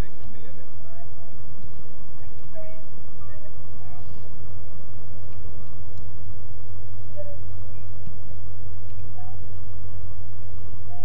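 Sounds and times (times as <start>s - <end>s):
car engine drone: 0.0s - 11.0s
road noise: 0.0s - 11.0s.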